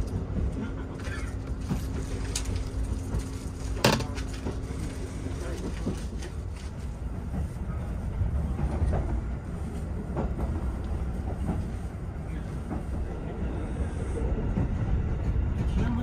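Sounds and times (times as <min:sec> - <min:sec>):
train coach rumbling: 0:00.0 - 0:16.0.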